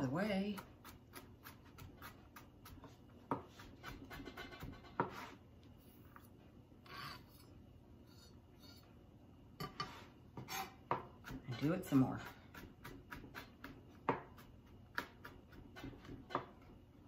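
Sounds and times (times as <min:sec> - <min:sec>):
knife chopping on plastic board: 0:00.4 - 0:05.3, 0:09.7 - 0:16.7
knife scraping cutting board: 0:00.8 - 0:09.0, 0:09.6 - 0:16.5.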